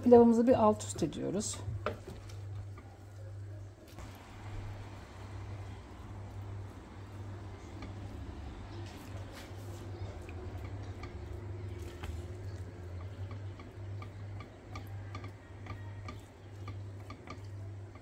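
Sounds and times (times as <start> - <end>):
steady low hum: 0.0 - 18.0
wooden spoon clicking in pot: 10.2 - 18.0.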